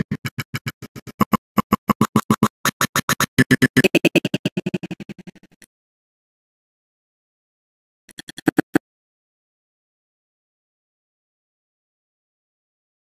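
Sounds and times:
stuttering audio snippets: 0.0 - 5.7, 8.1 - 8.8.

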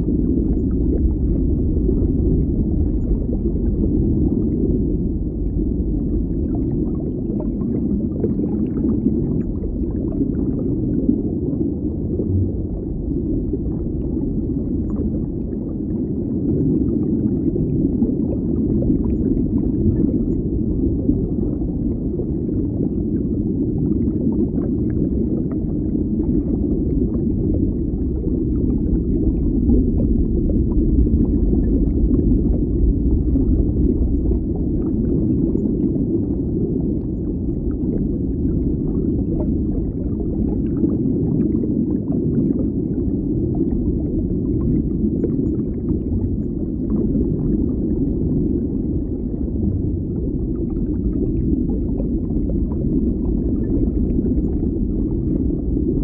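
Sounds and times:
muffled underwater bubbling: 0.0 - 56.0
small bubble crackles: 0.0 - 56.0.

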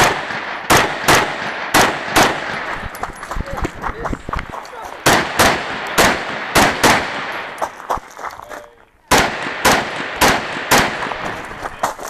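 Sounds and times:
rifle shots: 0.0 - 3.0, 5.0 - 7.6, 9.1 - 11.6.

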